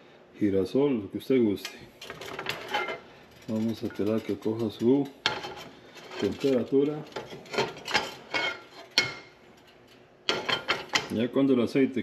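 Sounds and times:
wok scraping and knocking on burner: 0:02.0 - 0:11.2.

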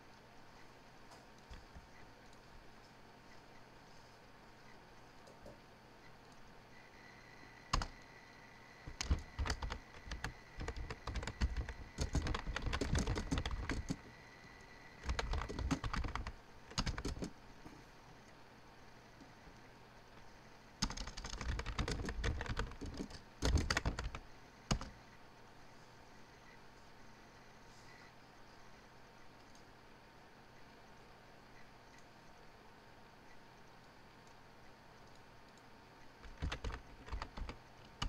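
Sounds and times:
computer keyboard typing: 0:07.7 - 0:08.1, 0:08.8 - 0:14.2, 0:15.0 - 0:17.4, 0:20.8 - 0:25.0, 0:36.2 - 0:38.0.

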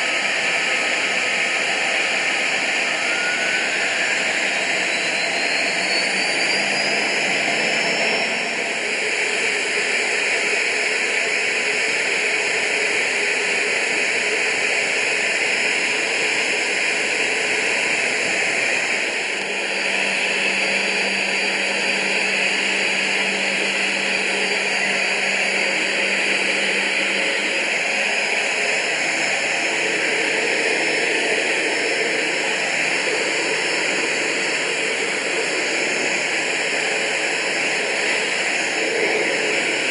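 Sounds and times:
turbojet engine hiss: 0:00.0 - 0:39.9
rushing airflow: 0:15.5 - 0:39.9.

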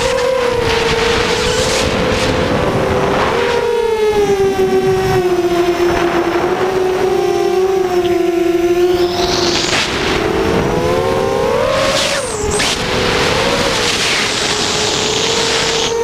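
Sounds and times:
drone motors whining: 0:00.0 - 0:16.0
wind rush: 0:00.0 - 0:16.0.

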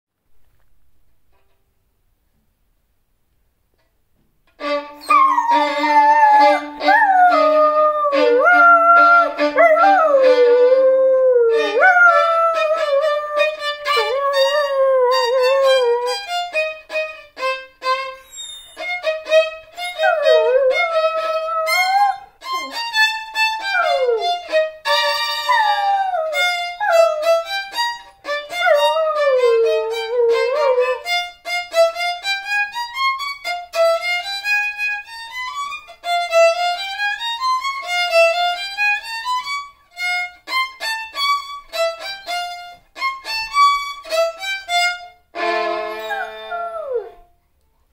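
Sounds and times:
violin playing: 0:04.5 - 0:47.4
dog howling: 0:05.0 - 0:16.2, 0:19.9 - 0:22.8, 0:23.5 - 0:24.5, 0:25.4 - 0:27.5, 0:28.4 - 0:31.1, 0:45.9 - 0:47.3.

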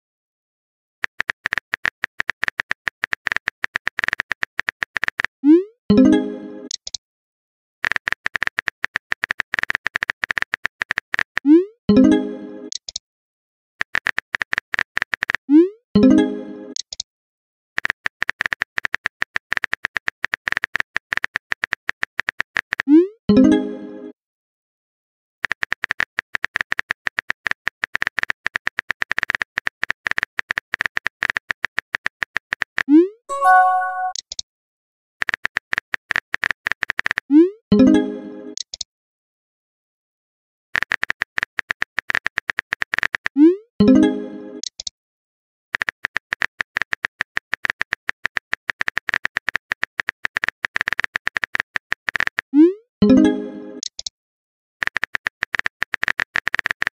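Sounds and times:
phone keyboard typing clicks: 0:45.8 - 0:52.4, 0:53.8 - 0:54.1, 0:54.8 - 0:56.9.

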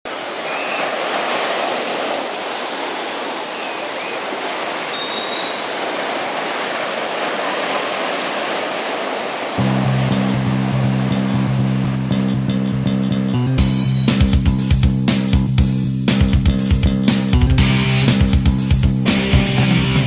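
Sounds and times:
ocean waves breaking on beach: 0:00.1 - 0:12.8
faint high chirps: 0:04.9 - 0:05.7.

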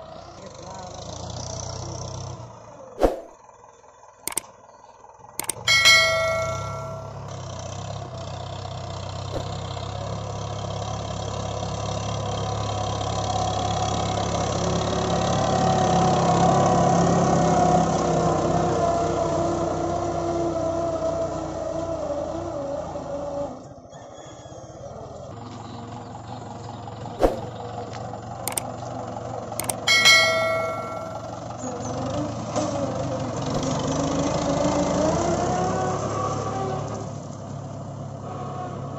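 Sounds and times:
tractor diesel engine running: 0:00.0 - 0:23.7, 0:24.8 - 0:38.9
short bell chime: 0:05.4 - 0:07.3, 0:29.6 - 0:31.4.

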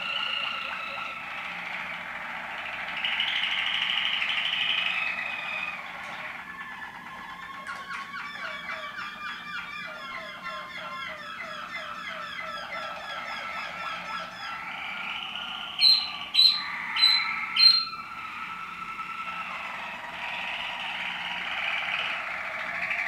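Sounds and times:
canaries singing: 0:00.0 - 0:23.0
loud sharp bird notes: 0:00.0 - 0:23.0.

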